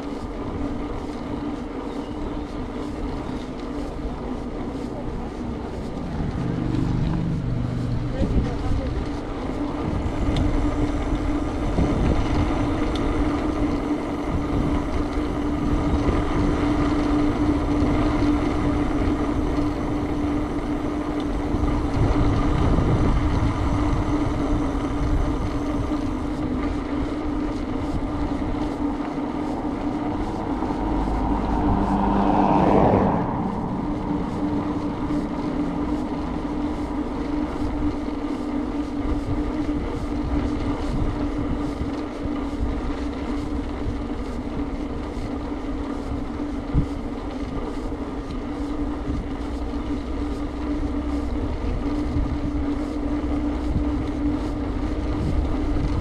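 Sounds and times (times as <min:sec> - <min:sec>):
constant hum: 0:00.0 - 0:56.0
road noise of moving vehicle: 0:00.0 - 0:56.0
vehicle passing: 0:03.1 - 0:41.8.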